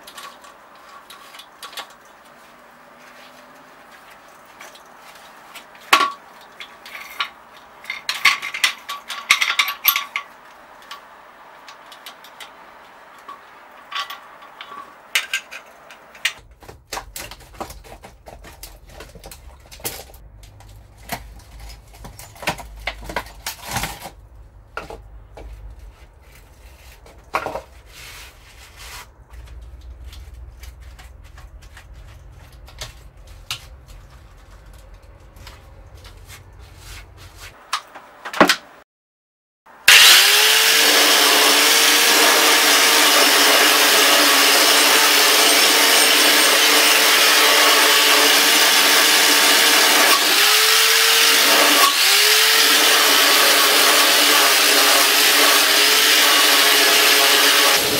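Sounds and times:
metallic clinks and knocks: 6.0s - 11.0s.

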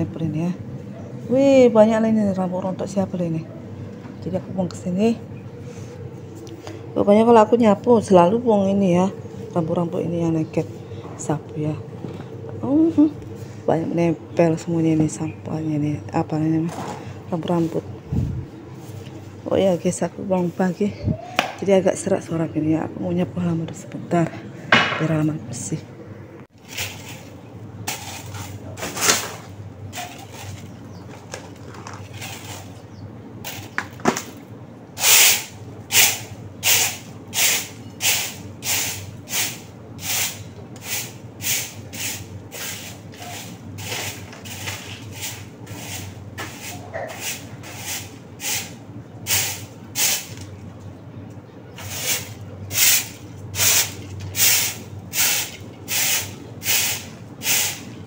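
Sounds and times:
broom sweeping hard floor: 26.6s - 30.6s, 35.0s - 50.4s, 51.8s - 58.0s.

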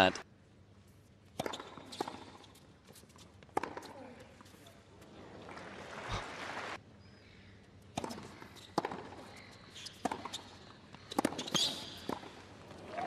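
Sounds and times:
racket hitting tennis ball: 1.3s - 2.4s, 3.4s - 4.0s, 7.9s - 12.4s
tennis ball bouncing: 1.3s - 2.6s, 3.4s - 4.0s, 7.9s - 12.5s
crowd applause: 5.4s - 6.8s.

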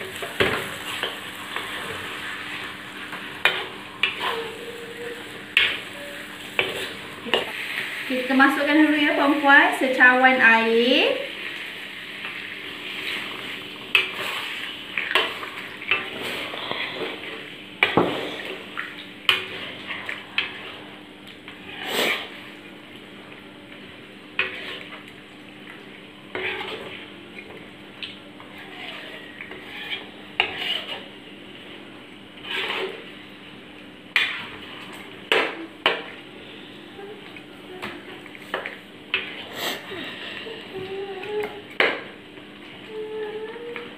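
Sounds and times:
metal spatula scraping a wok: 26.3s - 26.9s, 28.6s - 31.1s, 32.4s - 33.1s.

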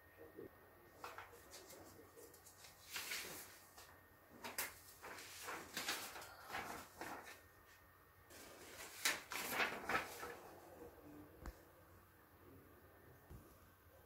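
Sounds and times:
paper sheets rustling: 1.0s - 10.9s.

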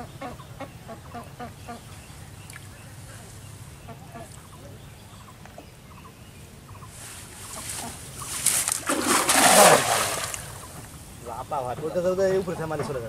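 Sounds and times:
faint bird calls: 0.0s - 12.8s
net splashing on water: 7.5s - 10.8s.

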